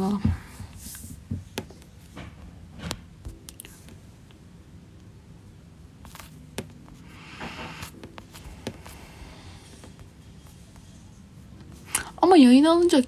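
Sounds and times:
soft rustle: 0.0 - 4.0.

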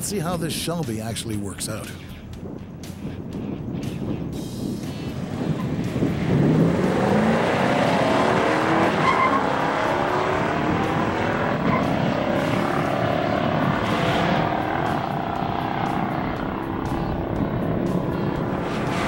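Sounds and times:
car engine at full throttle: 4.5 - 19.0.

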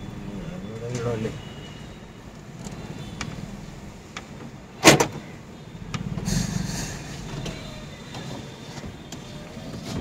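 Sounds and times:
car cabin rumble: 5.2 - 10.0
rush of rumble and hiss: 5.8 - 8.0.

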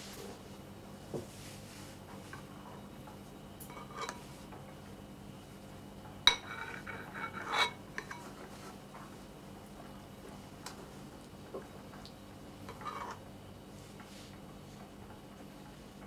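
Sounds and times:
spoon scraping in a bowl: 3.7 - 4.3, 6.3 - 8.4, 12.7 - 13.2
spoon clinking on a bowl: 6.3 - 8.2.

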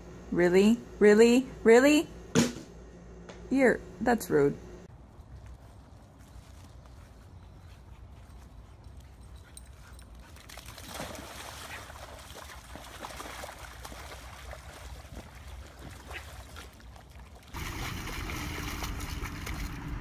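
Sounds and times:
muddy water splashing: 10.1 - 20.0.

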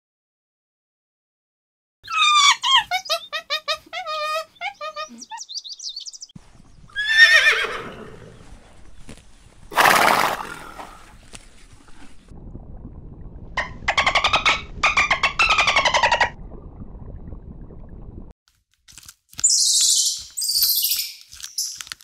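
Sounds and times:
horse neighing: 7.0 - 8.4
horse snorting: 9.7 - 11.2.

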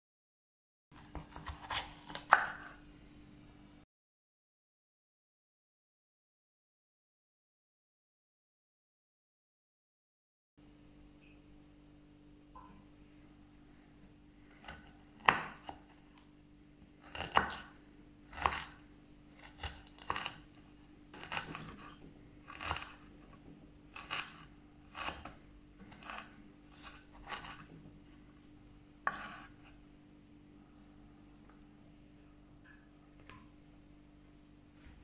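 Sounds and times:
knife chopping on wooden board: 1.0 - 2.7, 14.6 - 15.9, 17.0 - 27.7, 29.0 - 29.5.

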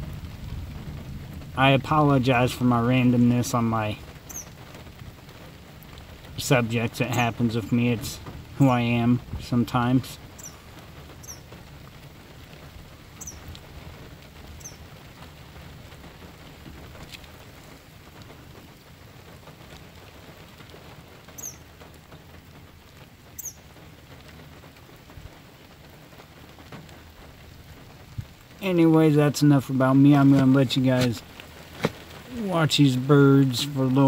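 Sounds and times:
steady rain patter: 0.0 - 34.0
high bird chirps: 4.3 - 4.5, 10.4 - 10.6, 11.2 - 11.5, 13.2 - 13.4, 14.6 - 14.8, 21.4 - 21.6, 23.4 - 23.6.

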